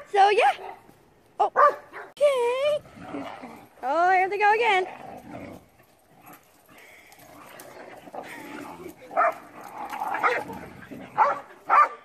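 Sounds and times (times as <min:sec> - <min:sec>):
dog barking sharply: 0:01.6 - 0:02.1, 0:11.2 - 0:12.0
small dogs play-fighting: 0:04.9 - 0:11.8.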